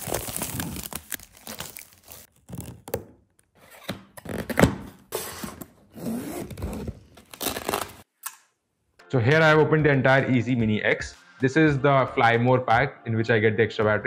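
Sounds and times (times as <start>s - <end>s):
plastic film crinkling and tearing: 0.0s - 3.0s, 7.2s - 8.1s.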